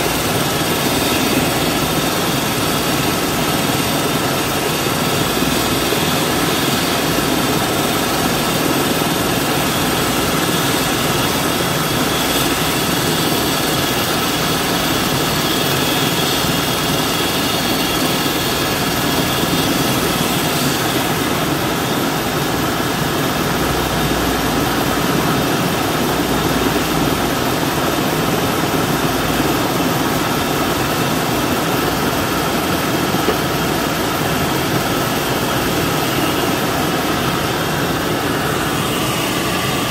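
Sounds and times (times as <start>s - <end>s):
helicopter turbine and rotor: 0.0s - 39.9s.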